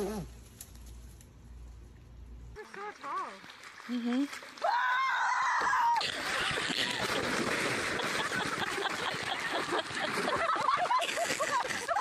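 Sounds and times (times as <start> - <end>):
woman shrieking: 4.6 - 6.0
water splashing and churning: 6.0 - 12.0.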